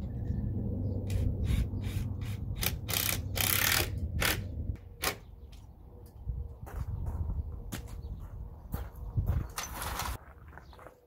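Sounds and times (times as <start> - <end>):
power drill driving screws into wood: 1.5 - 4.4.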